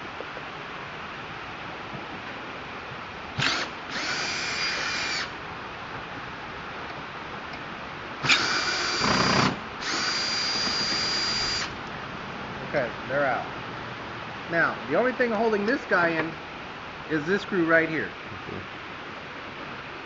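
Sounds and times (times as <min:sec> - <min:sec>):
power drill motor whining: 0:03.4 - 0:05.4, 0:08.2 - 0:11.8.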